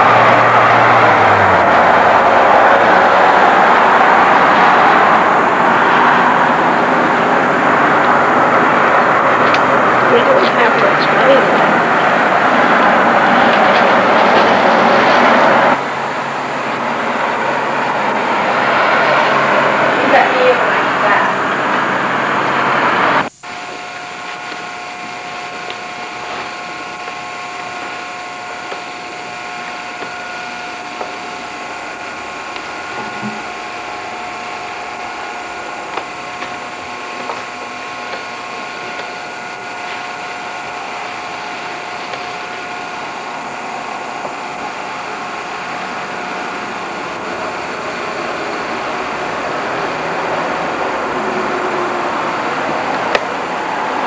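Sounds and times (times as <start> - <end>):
mechanical hum with hiss: 0.0 - 54.0
held tones: 19.3 - 53.6.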